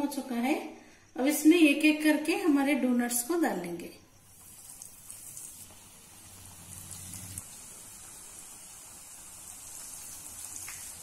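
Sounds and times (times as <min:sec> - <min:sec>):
food frying in hot oil: 0:04.2 - 0:11.0.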